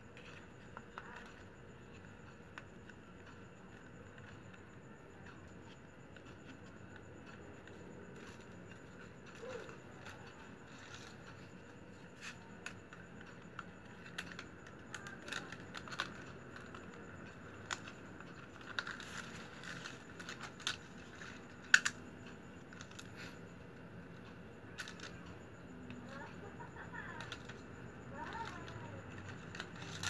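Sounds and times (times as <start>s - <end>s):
plastic strips rustling and clicking: 5.4s - 22.0s, 27.2s - 30.0s.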